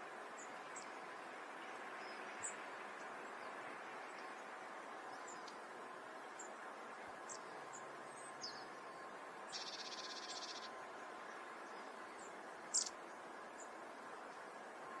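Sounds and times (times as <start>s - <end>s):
small birds high calls: 9.5s - 13.8s.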